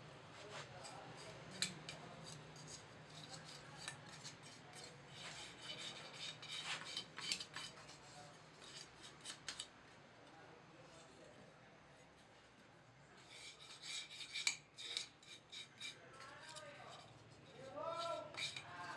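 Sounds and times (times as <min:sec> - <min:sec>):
metal tools scraping and clinking: 0:01.2 - 0:09.7, 0:13.4 - 0:18.9.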